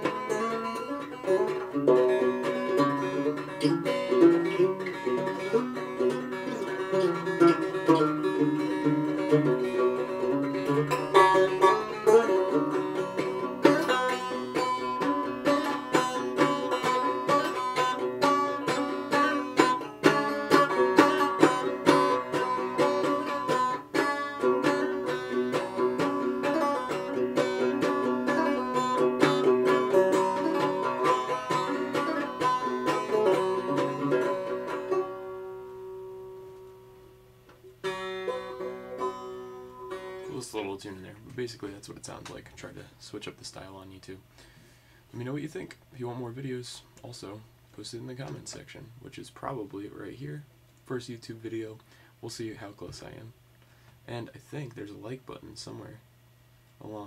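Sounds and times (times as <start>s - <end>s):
banjo played fingerstyle: 0.0s - 42.9s.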